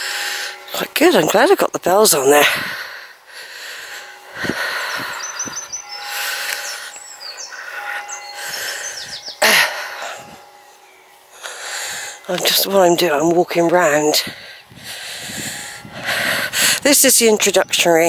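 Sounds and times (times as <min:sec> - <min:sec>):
steady outdoor hiss: 0:00.0 - 0:18.0
wind noise on microphone: 0:02.3 - 0:03.0, 0:04.2 - 0:06.7, 0:13.7 - 0:18.0
small birds chirping: 0:03.1 - 0:18.0.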